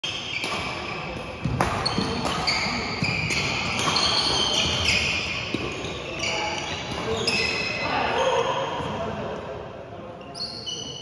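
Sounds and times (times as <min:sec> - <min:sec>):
sneakers squeaking: 0:00.0 - 0:09.0, 0:10.2 - 0:11.0
racket hitting shuttlecock: 0:00.3 - 0:05.7.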